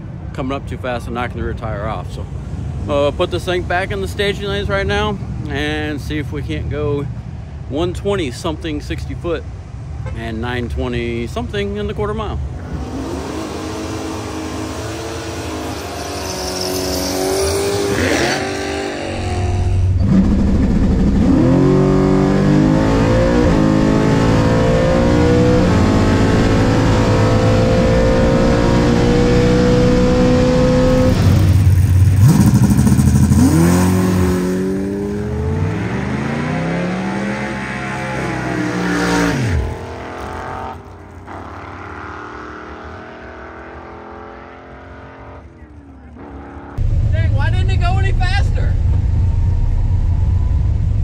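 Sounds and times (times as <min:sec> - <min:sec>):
vee eight engine revving: 0:12.6 - 0:45.5.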